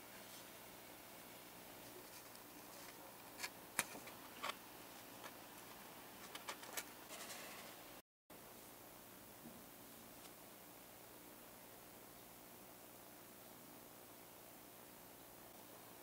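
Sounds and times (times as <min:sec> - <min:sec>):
paper sheet rustling: 0:06.2 - 0:07.8.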